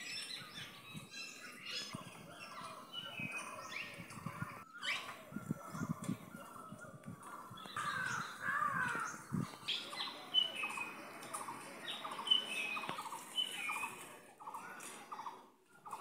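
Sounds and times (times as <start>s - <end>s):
birds calling: 0.0s - 16.0s.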